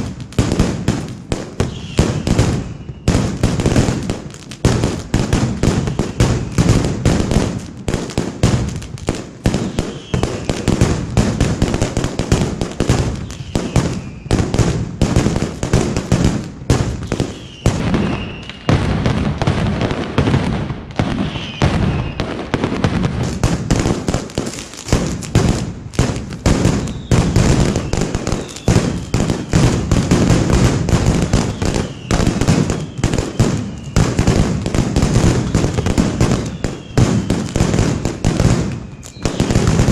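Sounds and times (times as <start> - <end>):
firecrackers exploding: 0.0 - 39.9
short whistles: 1.7 - 3.1, 9.7 - 10.5, 13.2 - 14.4, 17.1 - 18.8, 21.2 - 22.3, 26.8 - 29.5, 31.4 - 34.0, 38.8 - 39.5.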